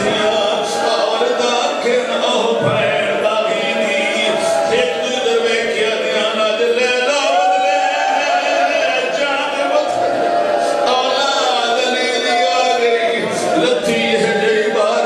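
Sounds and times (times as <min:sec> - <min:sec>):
man chanting into a microphone: 0:00.0 - 0:15.0.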